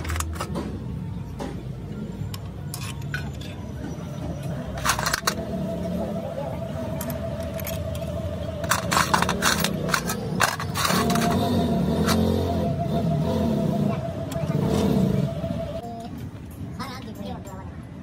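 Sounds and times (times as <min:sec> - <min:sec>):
metal tools clattering: 0:02.2 - 0:05.4, 0:07.0 - 0:11.4
low drone: 0:04.5 - 0:15.8.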